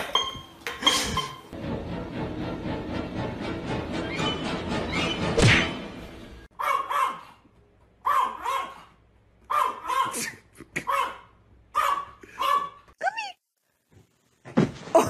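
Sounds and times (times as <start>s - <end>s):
dog barking: 6.6s - 7.4s, 8.0s - 12.8s.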